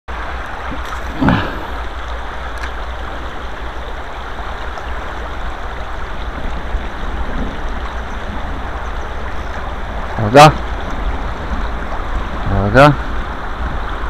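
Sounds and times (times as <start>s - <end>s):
river water rushing: 0.1s - 14.0s.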